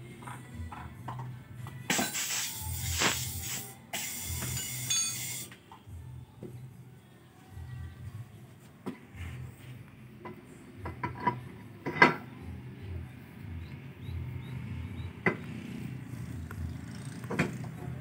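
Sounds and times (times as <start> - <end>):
metal tools clinking: 4.4 - 5.5.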